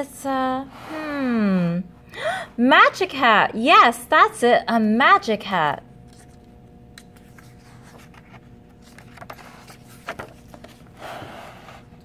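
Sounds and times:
faint steady hum: 0:00.0 - 0:12.0
book page turning: 0:06.0 - 0:11.9.

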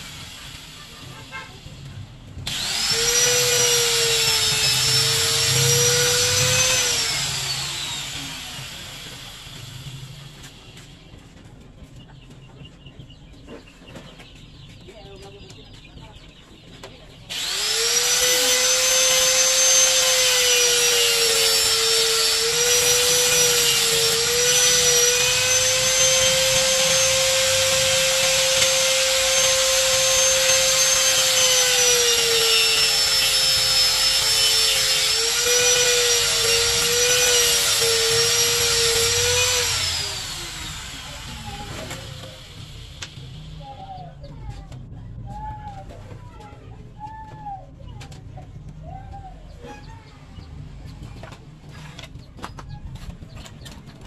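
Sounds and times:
angle grinder whining: 0:02.4 - 0:10.9, 0:17.3 - 0:43.6.

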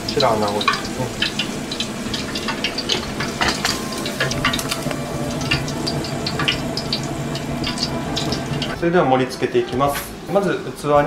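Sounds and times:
oil popping and crackling: 0:00.0 - 0:08.8
fish deep-frying in oil: 0:00.0 - 0:10.8.

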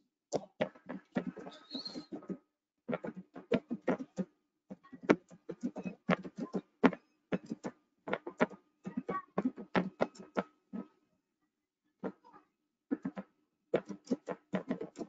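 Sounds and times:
music with beat and singing: 0:03.0 - 0:10.9.

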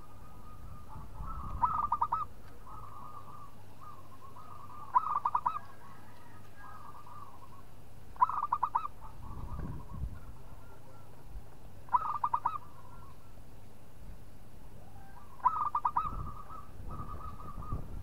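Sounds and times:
dove cooing: 0:00.0 - 0:11.3, 0:11.9 - 0:13.4, 0:14.8 - 0:18.0.

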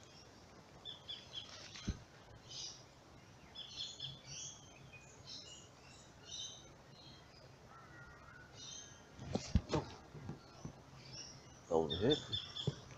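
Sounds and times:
faint background noise: 0:00.0 - 0:12.9
small birds chirping: 0:00.0 - 0:12.9.

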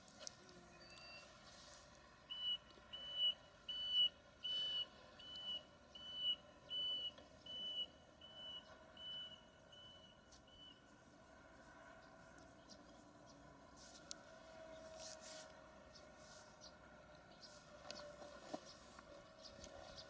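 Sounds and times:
faint steady hum: 0:00.0 - 0:20.0
reversing alarm beeps: 0:02.3 - 0:10.8.

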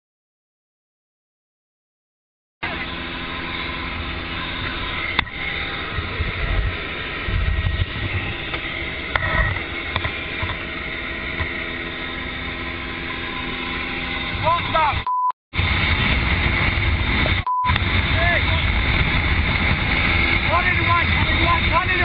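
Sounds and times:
helicopter engine and rotors: 0:02.6 - 0:22.0
wind gusting on microphone: 0:03.0 - 0:15.0, 0:15.6 - 0:22.0.

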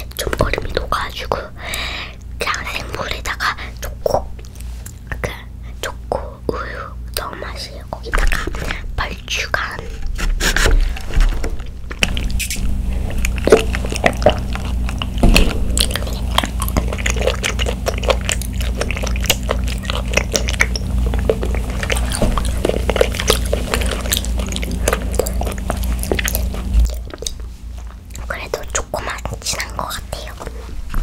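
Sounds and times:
plastic straw stirred in cup: 0:15.9 - 0:27.4.

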